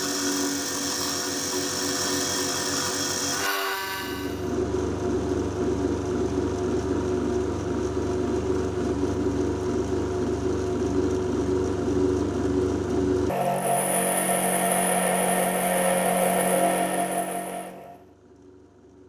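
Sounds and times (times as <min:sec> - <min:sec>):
bench grinder running: 0:00.0 - 0:04.6, 0:13.3 - 0:18.0.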